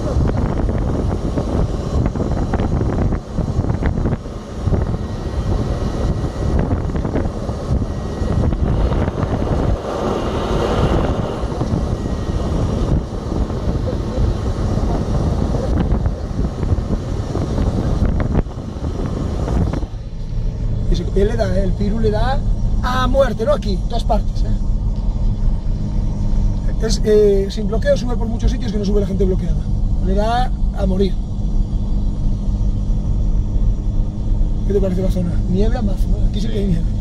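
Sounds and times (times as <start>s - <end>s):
engine and tyres in snow: 0.0s - 37.0s.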